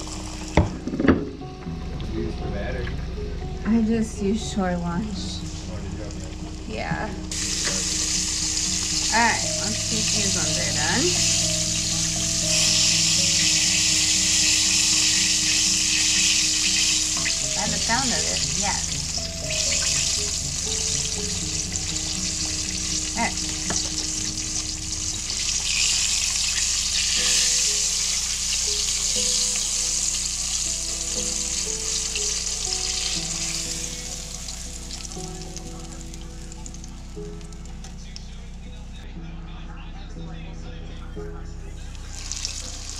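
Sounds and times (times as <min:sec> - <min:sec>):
fish deep-frying in oil: 0:06.4 - 0:38.0, 0:42.0 - 0:42.9.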